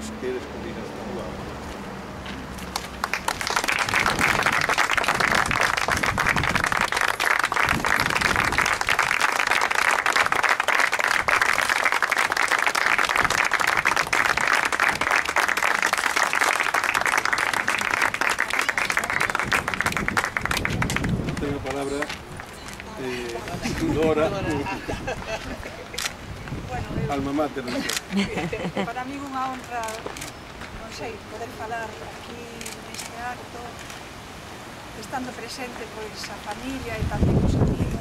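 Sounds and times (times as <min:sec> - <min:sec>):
people applauding: 0:02.7 - 0:24.2.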